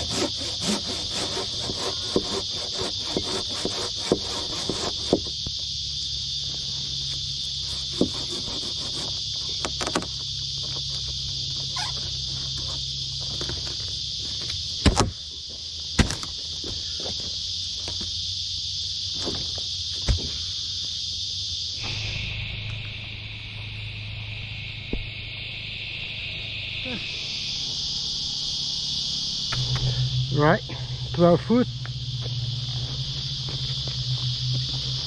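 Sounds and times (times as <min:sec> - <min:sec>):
insects droning: 0:00.0 - 0:35.0.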